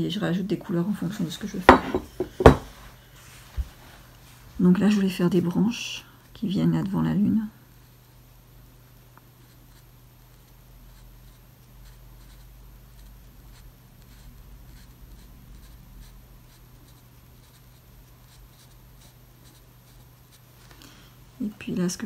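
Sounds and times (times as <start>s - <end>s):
brush strokes on paper: 2.7s - 4.5s.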